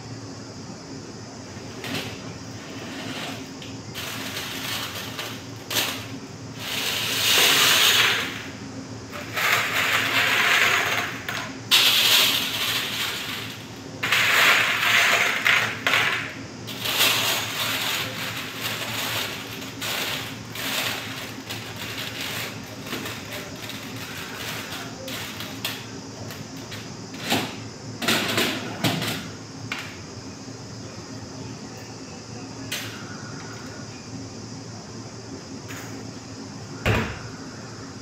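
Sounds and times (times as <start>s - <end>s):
foil crinkling on metal tray: 16.7s - 25.5s.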